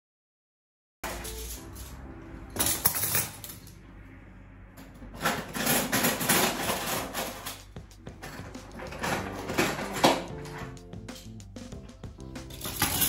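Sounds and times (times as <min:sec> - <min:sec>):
metal cutlery clinking: 0:01.0 - 0:02.0, 0:02.6 - 0:03.8, 0:05.2 - 0:11.4, 0:12.5 - 0:13.0.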